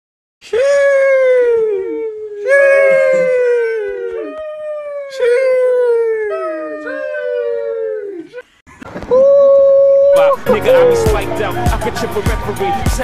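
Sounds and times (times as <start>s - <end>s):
dog howling: 1.3s - 8.4s, 9.2s - 11.4s.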